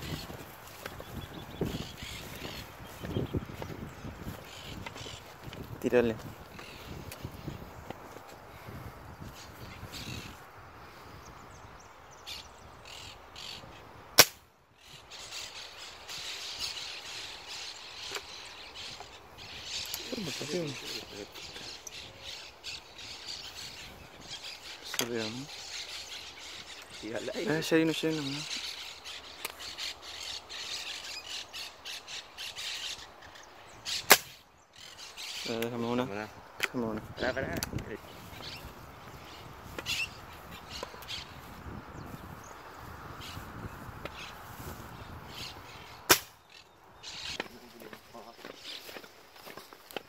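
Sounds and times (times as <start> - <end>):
parakeets squawking: 0.0 - 7.6, 14.8 - 41.5, 42.4 - 49.6
parrots squawking: 1.4 - 3.3, 38.3 - 41.4
man talking: 5.8 - 6.3, 20.0 - 21.7, 24.9 - 25.5, 27.0 - 28.5, 35.4 - 38.1, 47.5 - 48.5
air rifle shot: 14.2 - 14.4, 34.1 - 34.3, 46.1 - 46.4.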